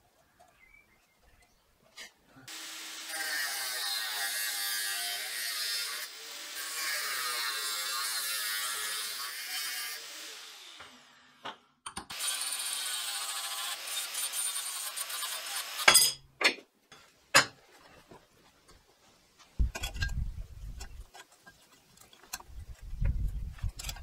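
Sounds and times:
angle grinder cutting steel: 0:02.5 - 0:11.4, 0:12.1 - 0:16.2.

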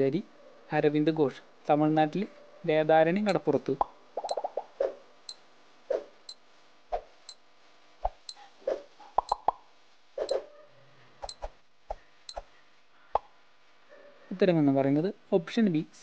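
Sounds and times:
sharp high ticks: 0:03.8 - 0:04.7, 0:08.1 - 0:08.4, 0:09.2 - 0:09.6.

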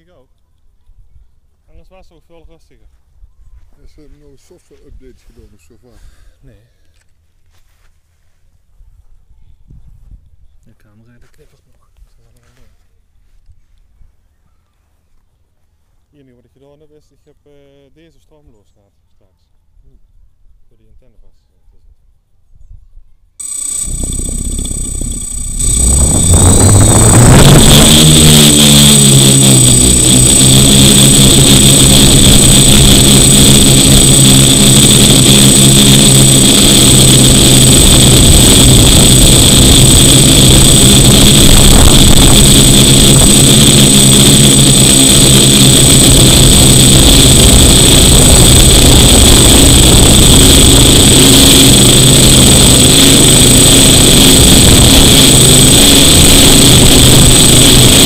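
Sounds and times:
drone motors buzzing: 0:23.4 - 0:58.0
high whine: 0:23.4 - 0:58.0.

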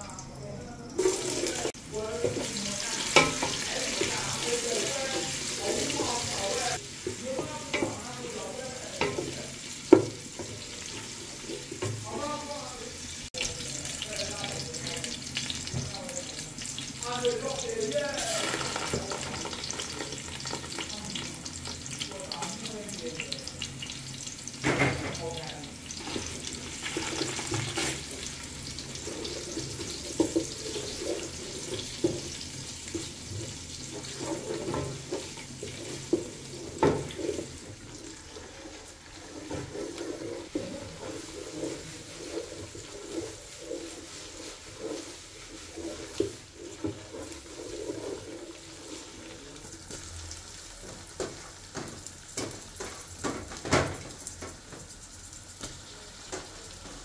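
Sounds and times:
onions sizzling in oil: 0:00.0 - 0:57.0
wooden spatula scraping pot: 0:01.0 - 0:12.6, 0:17.4 - 0:21.8, 0:25.9 - 0:53.0.

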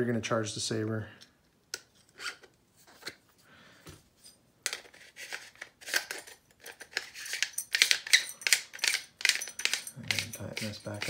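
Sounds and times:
metallic clicks and scrapes: 0:04.2 - 0:11.0
metal parts clicking: 0:05.8 - 0:11.0.

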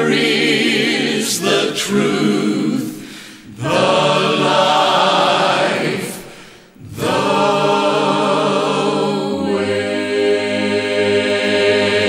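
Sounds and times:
choir singing held chords: 0:00.0 - 0:12.0.

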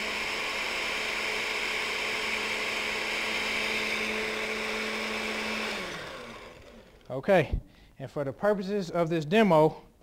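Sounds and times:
blender motor running: 0:00.0 - 0:07.2.

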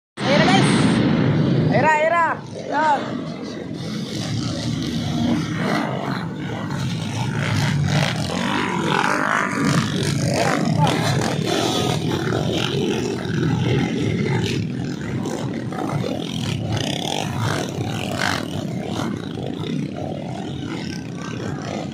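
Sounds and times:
dirt bike engines revving: 0:00.2 - 0:21.9.

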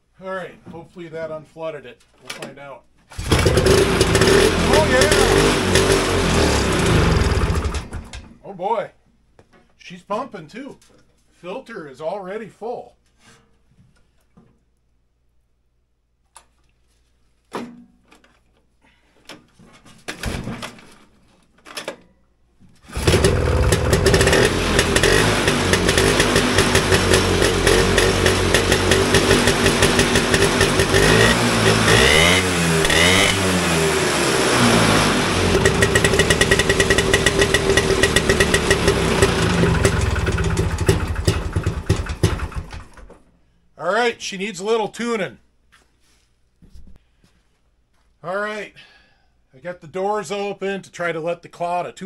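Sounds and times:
snowmobile engine sputtering and running: 0:03.2 - 0:08.1, 0:22.9 - 0:42.8.

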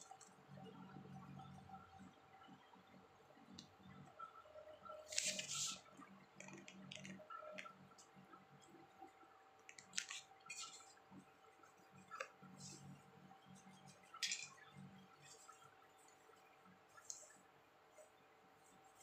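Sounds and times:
paper tissue rustling: 0:05.1 - 0:05.8.

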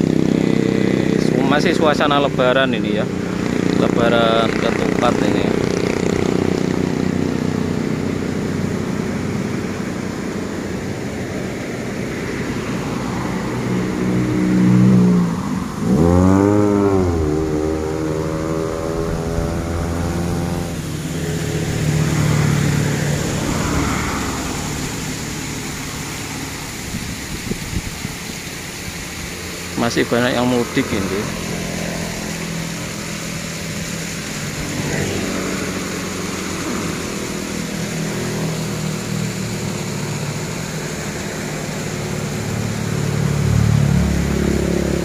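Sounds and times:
motorcycle engine running: 0:00.0 - 0:28.4, 0:29.0 - 0:45.0
road noise: 0:00.0 - 0:45.0
wind noise: 0:26.7 - 0:29.0.

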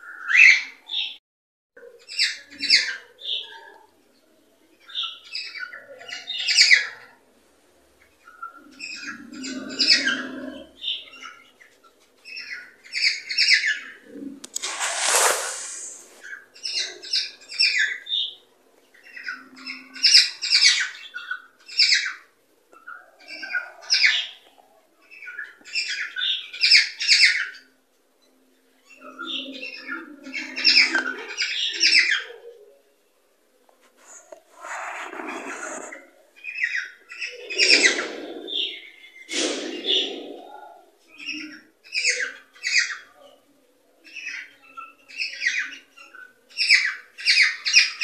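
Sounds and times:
short harsh noisy burst: 0:14.5 - 0:16.2.

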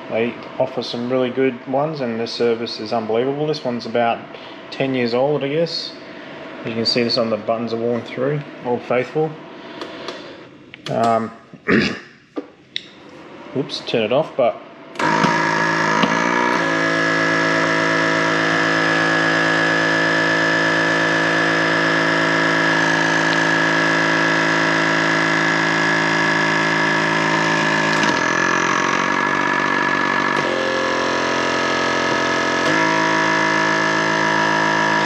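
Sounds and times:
vacuum sealer pump humming: 0:14.9 - 0:35.0.

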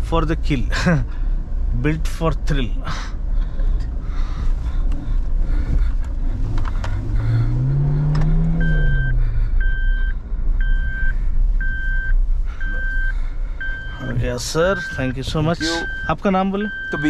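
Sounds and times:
car engine revving: 0:03.8 - 0:11.5
electronic beep: 0:14.8 - 0:17.0.

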